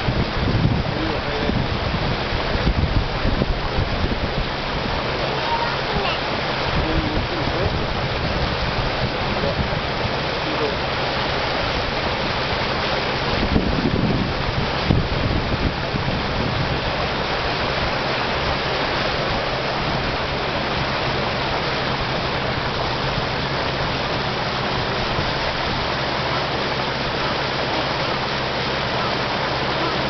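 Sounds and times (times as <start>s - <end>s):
low engine hum: 0.0s - 30.0s
water rushing along hull: 0.0s - 30.0s.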